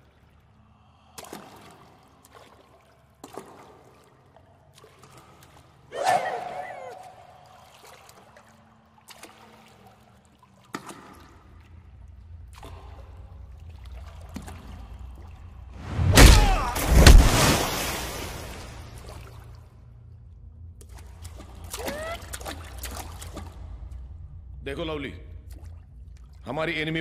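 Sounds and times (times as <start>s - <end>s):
low rumble: 14.8s - 21.5s.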